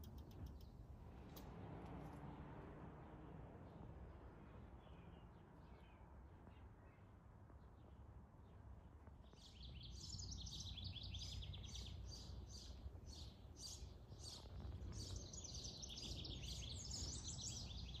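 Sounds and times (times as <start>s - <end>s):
bird chirping: 9.3s - 18.0s.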